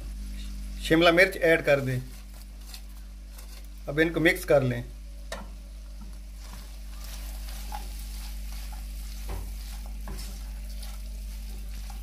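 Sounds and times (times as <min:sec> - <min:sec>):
filling sizzling in a wok: 0:00.0 - 0:12.0
spatula scraping and knocking pan: 0:02.1 - 0:03.7, 0:05.3 - 0:12.0.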